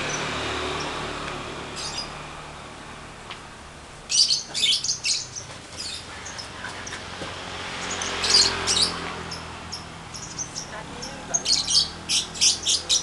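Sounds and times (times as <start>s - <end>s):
lovebirds chirping: 1.6s - 2.3s, 4.0s - 13.0s.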